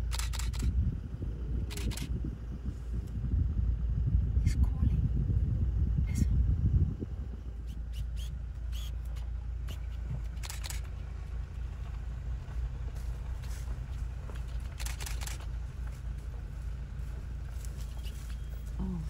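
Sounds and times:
car engine running: 0.0s - 19.0s.

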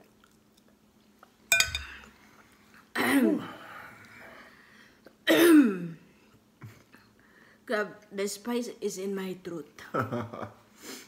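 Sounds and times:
clink and knock: 1.5s - 2.1s
person clearing throat: 5.3s - 6.0s.

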